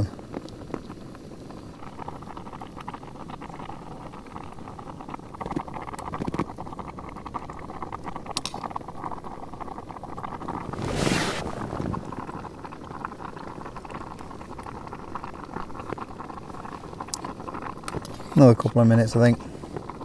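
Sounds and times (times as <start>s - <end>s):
water bubbling in pot: 0.0s - 18.4s
gas burner hiss: 10.2s - 13.6s.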